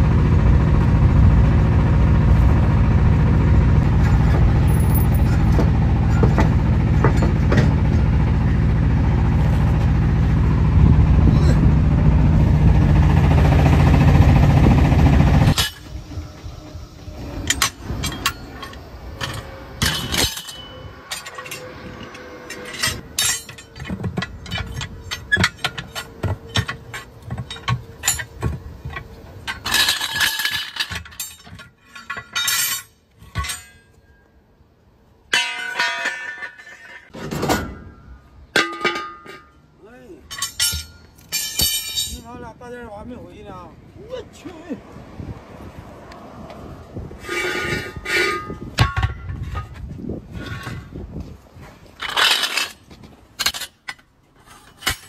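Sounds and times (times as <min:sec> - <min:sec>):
loud vehicle noise: 0:00.0 - 0:31.3, 0:42.9 - 0:53.7
tyre irons clinking on steel rim: 0:17.5 - 0:34.2, 0:35.3 - 0:37.1, 0:38.6 - 0:42.4.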